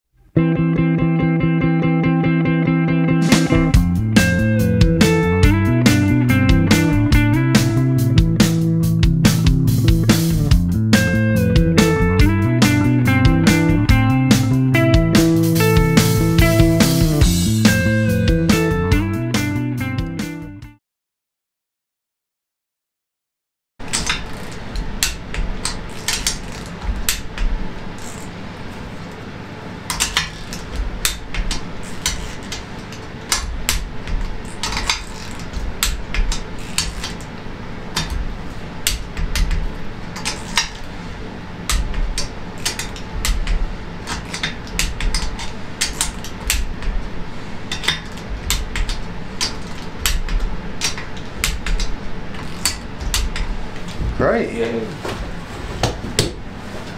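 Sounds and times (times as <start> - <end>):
socket wrench ratchet clicks: 34.4 - 36.0.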